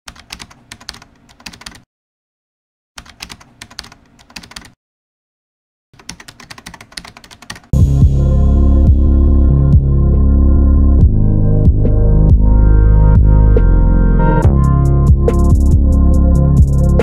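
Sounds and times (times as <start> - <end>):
rapid keyboard key clicks: 0.1 - 1.8, 3.0 - 4.8, 6.0 - 7.7.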